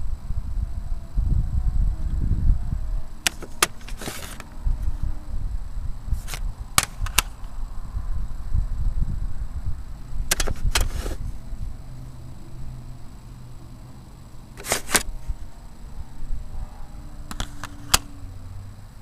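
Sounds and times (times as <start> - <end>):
handheld camera handling rumble: 3.2 - 5.0, 6.1 - 7.6, 10.2 - 11.5, 14.6 - 15.4, 17.3 - 18.1
sharp clicks and knocks: 10.3 - 11.2, 17.3 - 18.1.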